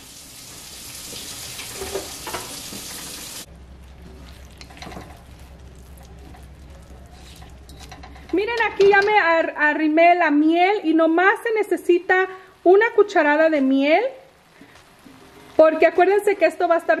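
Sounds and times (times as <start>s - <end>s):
oil sizzling in a wok: 0.0s - 7.9s
low hum: 3.5s - 8.4s
spatula stirring and scraping: 3.6s - 9.0s.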